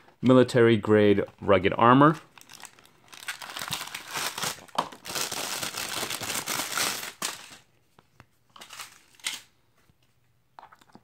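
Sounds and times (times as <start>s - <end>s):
packaging rustling and crinkling: 2.1s - 7.7s.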